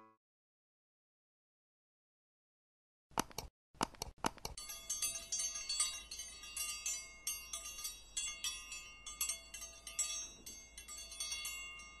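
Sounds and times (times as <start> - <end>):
metal chimes ringing: 4.6 - 12.0.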